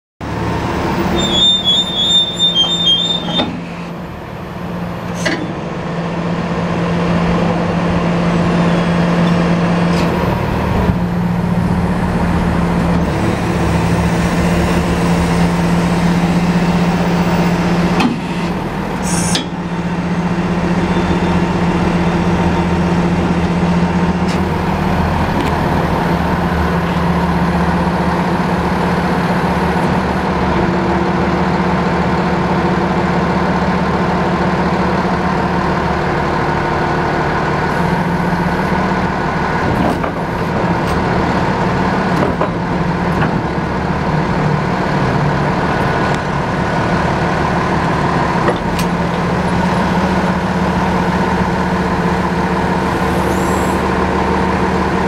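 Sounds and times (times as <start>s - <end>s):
diesel truck engine humming: 0.2s - 55.0s.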